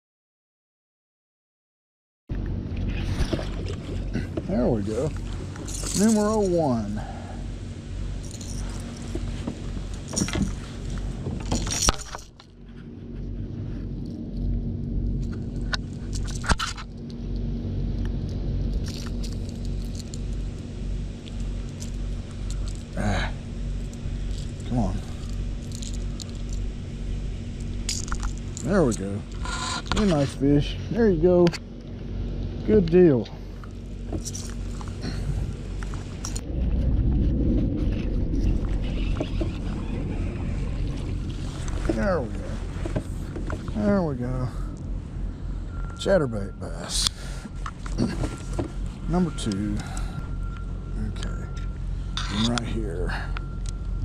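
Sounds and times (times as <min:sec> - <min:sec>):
low rumble: 0:02.3 - 0:54.0
wind rumble on microphone: 0:34.0 - 0:43.8.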